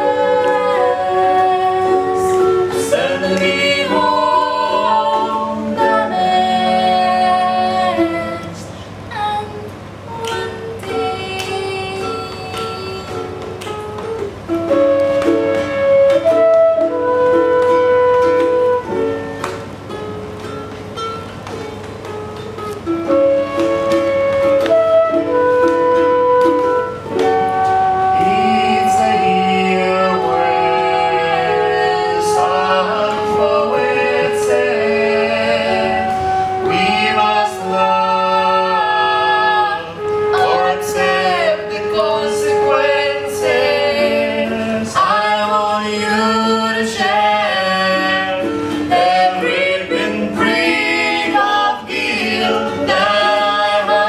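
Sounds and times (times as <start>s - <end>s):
group singing in harmony: 0.0s - 19.9s, 23.0s - 54.0s
ukulele: 0.0s - 54.0s.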